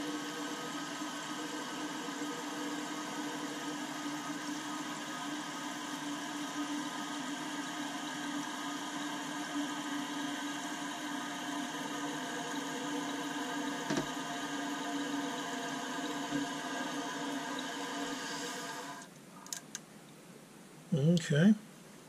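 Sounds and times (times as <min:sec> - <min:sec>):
toilet tank refilling with water: 0:00.0 - 0:19.1
knock: 0:13.9 - 0:14.1.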